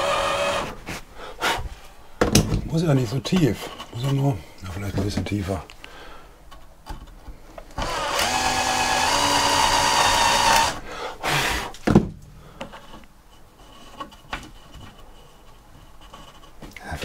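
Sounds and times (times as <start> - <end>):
power drill whining into wood: 0.0 - 0.8, 7.8 - 11.8.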